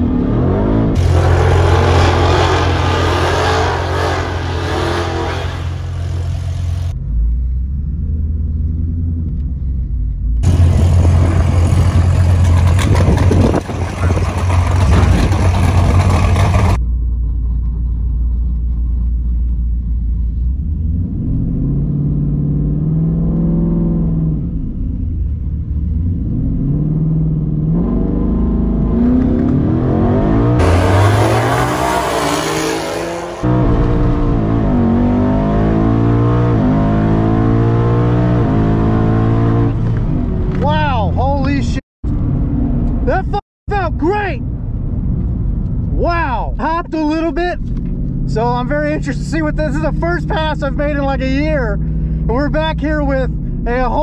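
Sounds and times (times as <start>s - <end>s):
engine revving: 0.0s - 8.3s, 10.4s - 16.8s, 25.7s - 41.6s
car engine at full throttle: 0.0s - 43.8s, 44.4s - 54.0s
car engine idling: 8.6s - 20.8s.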